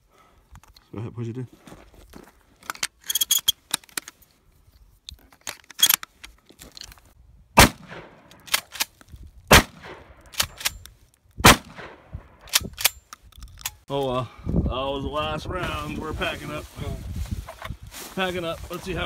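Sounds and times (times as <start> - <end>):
shotgun shots: 7.6 - 8.2, 9.5 - 10.7, 11.4 - 12.0
shells clicking into magazine: 10.3 - 11.0, 12.5 - 13.8.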